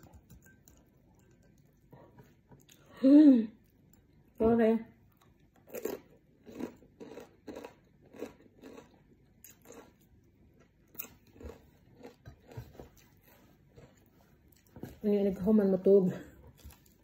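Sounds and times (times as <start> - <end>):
chewing and crunching food: 5.0 - 15.4, 16.3 - 17.0.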